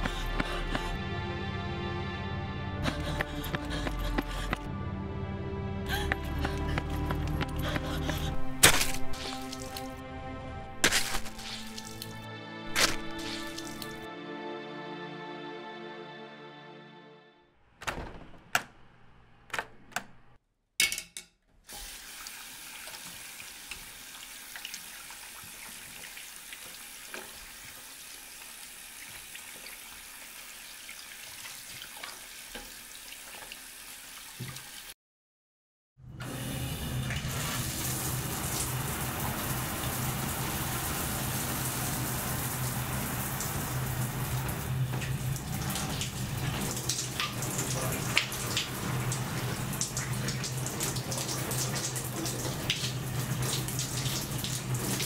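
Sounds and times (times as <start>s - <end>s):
shower spraying: 7.6s - 10.0s, 10.8s - 14.1s, 21.7s - 34.9s, 36.3s - 55.0s
tap running into a sink: 34.4s - 34.7s.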